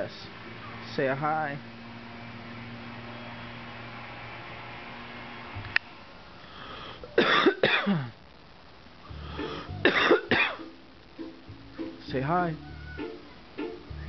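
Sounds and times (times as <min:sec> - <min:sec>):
person coughing: 0:07.2 - 0:08.2, 0:09.8 - 0:10.6.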